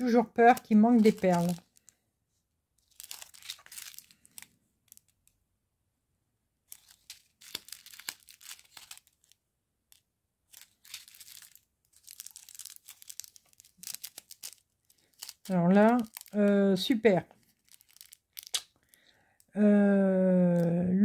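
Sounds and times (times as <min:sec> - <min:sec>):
plastic sachets crinkling: 0:00.0 - 0:02.0, 0:02.8 - 0:05.4, 0:06.7 - 0:19.6.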